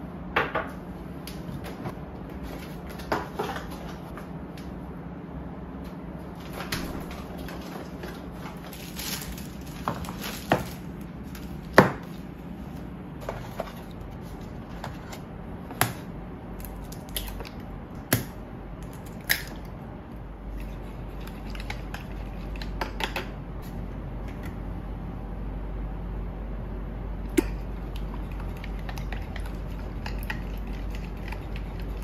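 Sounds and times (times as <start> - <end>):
faint steady hum: 0.0 - 32.0
fork beating eggs: 20.5 - 23.3, 27.4 - 32.0.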